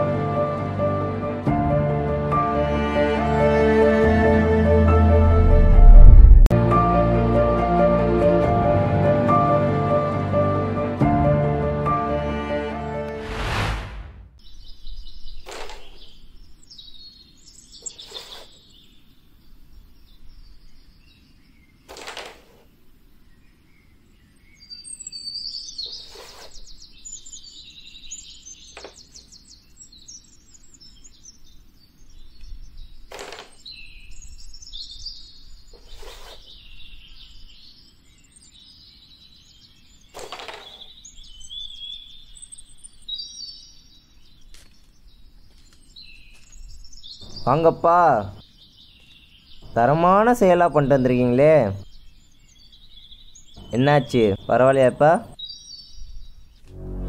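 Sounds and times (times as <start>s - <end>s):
birds chirping: 14.2s - 57.0s.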